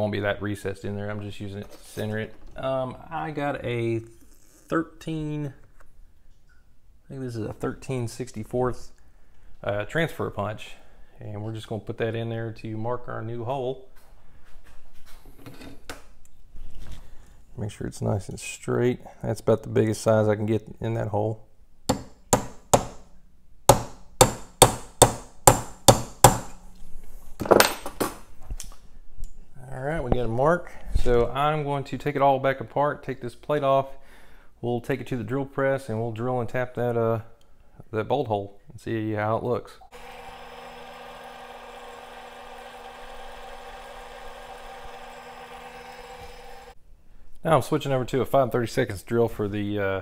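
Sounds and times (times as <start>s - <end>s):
hammer tapping metal punch: 21.9s - 23.0s, 23.7s - 26.6s
drill bit drilling into metal: 39.9s - 46.8s
drill press humming: 39.9s - 46.8s.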